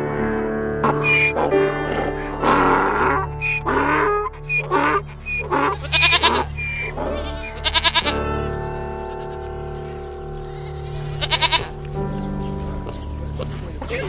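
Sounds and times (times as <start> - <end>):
droning background music: 0.0 - 14.0
young goat bleating: 3.4 - 11.9.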